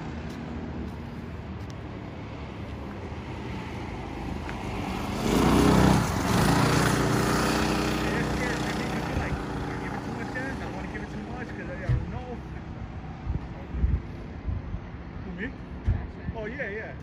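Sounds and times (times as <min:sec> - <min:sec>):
go-kart engines racing: 0:03.7 - 0:13.3.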